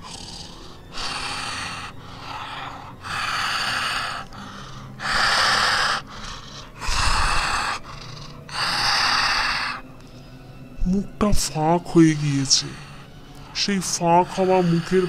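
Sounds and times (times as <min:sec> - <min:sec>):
harsh rattling breathing: 0:00.0 - 0:10.8, 0:11.6 - 0:15.0.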